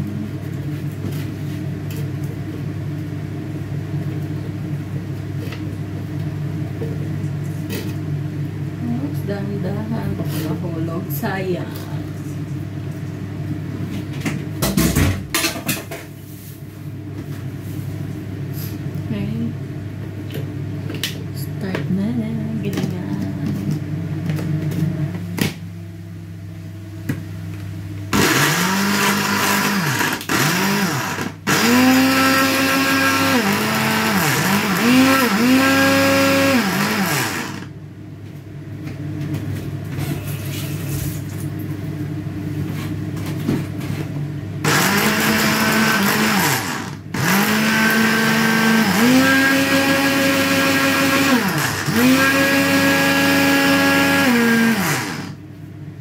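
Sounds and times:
electric blender chopping: 0:28.1 - 0:37.7, 0:44.6 - 0:55.4.

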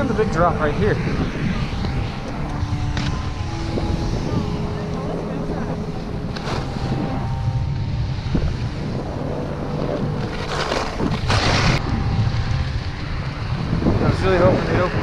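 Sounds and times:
wind on microphone: 0:00.0 - 0:15.0
skis scraping on snow: 0:06.3 - 0:07.1, 0:09.8 - 0:11.8.

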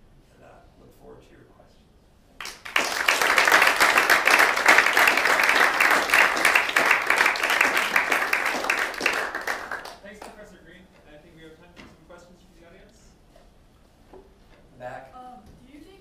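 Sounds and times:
audience applauding: 0:02.4 - 0:10.4.

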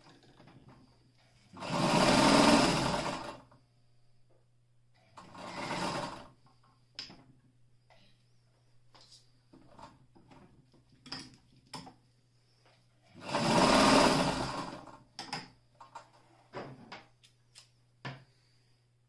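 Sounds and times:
electric sewing machine stitching: 0:01.5 - 0:03.5, 0:05.2 - 0:06.3, 0:13.2 - 0:15.0.

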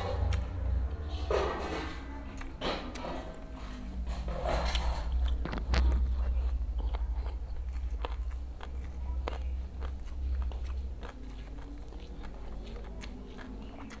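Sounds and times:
chewing food: 0:00.0 - 0:14.0.

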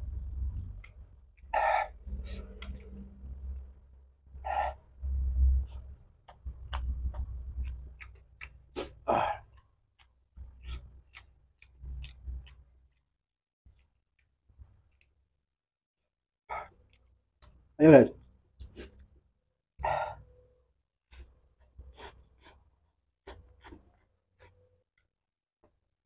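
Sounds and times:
wet chewing clicks: 0:00.5 - 0:03.7, 0:05.7 - 0:15.2
man gasping breaths and sighs: 0:09.0 - 0:09.5, 0:19.8 - 0:20.3.

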